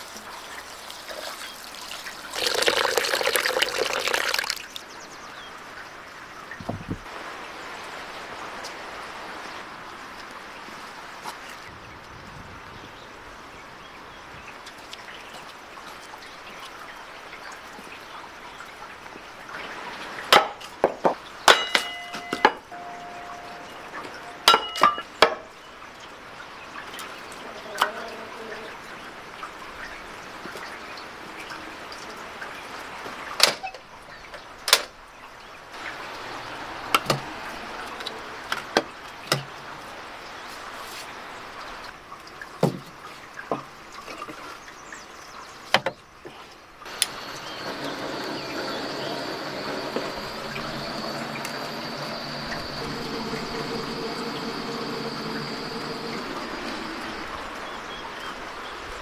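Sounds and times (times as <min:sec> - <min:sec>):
dishes clinking: 0:21.5 - 0:25.5
steady rushing noise: 0:46.9 - 0:59.0.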